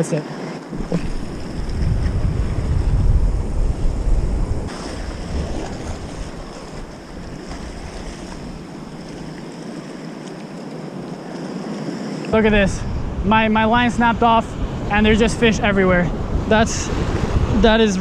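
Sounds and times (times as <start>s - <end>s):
waves washing against rocks: 0.7s - 12.2s
wind rumbling on microphone: 0.7s - 18.0s.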